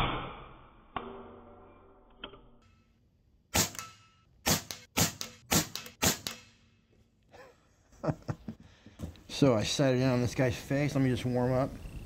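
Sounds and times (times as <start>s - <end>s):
air rifle shot: 3.5s - 6.5s.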